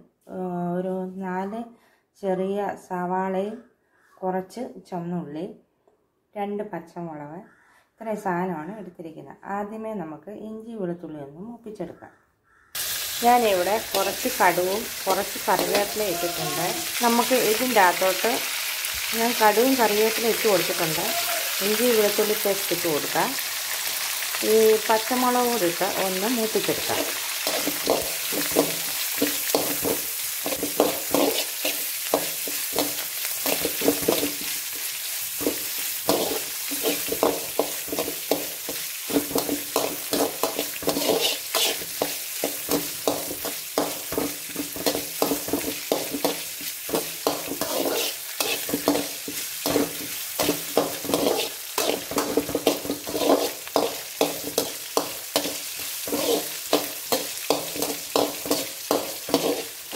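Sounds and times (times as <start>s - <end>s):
food sizzling in hot oil: 12.8s - 59.9s
metal spatula scraping pan: 13.5s - 17.6s, 26.7s - 59.8s.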